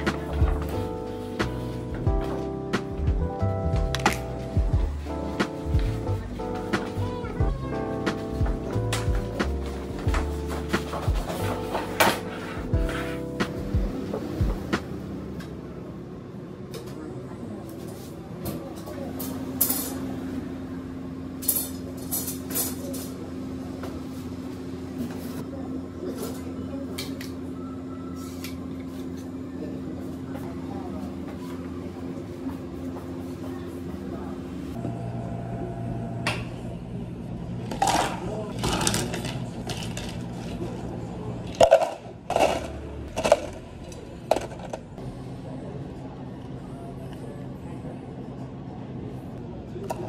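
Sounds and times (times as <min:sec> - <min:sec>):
low machine hum: 0:00.0 - 0:50.0
ice cubes clattering into cups: 0:37.7 - 0:40.6
objects clinking and clattering: 0:41.5 - 0:44.9.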